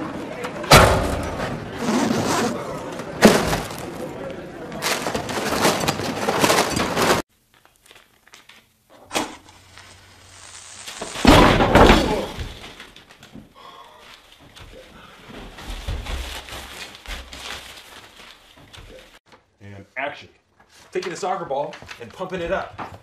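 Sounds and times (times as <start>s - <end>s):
rising hiss: 9.2s - 11.6s.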